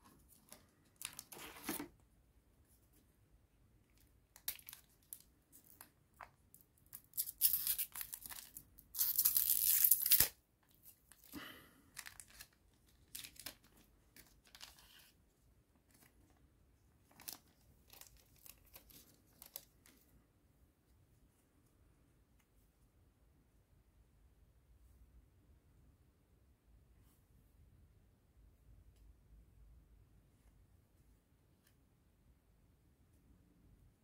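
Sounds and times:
foil wrapper tearing: 0:07.1 - 0:10.3.

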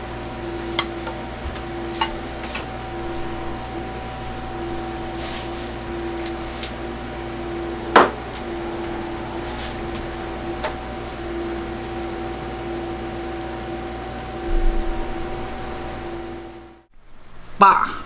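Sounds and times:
kitchen appliance electrical hum: 0:00.0 - 0:18.0.

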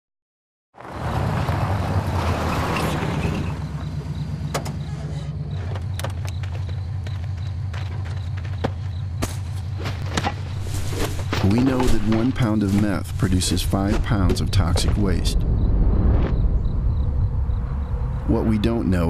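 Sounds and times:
car engine idling: 0:01.2 - 0:11.5.

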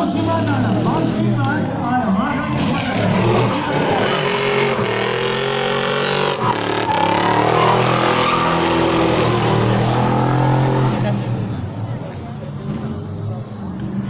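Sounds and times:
race car engine revving: 0:00.0 - 0:11.8
tyres squealing: 0:02.3 - 0:11.0.

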